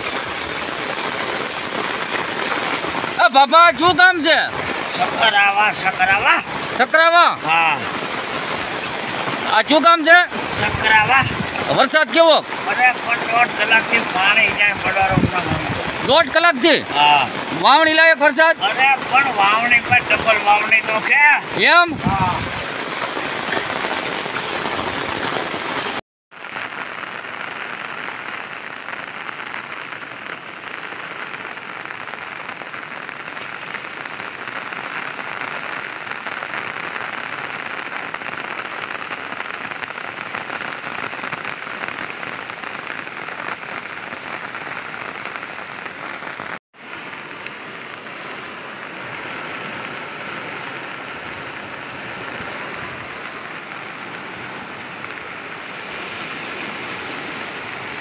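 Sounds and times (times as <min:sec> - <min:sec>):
heavy rain: 0:00.0 - 0:58.0
stream running fast: 0:00.0 - 0:58.0.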